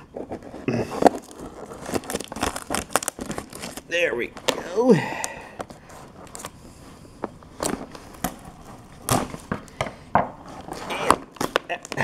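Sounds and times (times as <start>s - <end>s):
tape and cardboard crackling: 0.0s - 6.6s, 7.2s - 12.0s
scissors cutting packing tape: 0.9s - 3.8s.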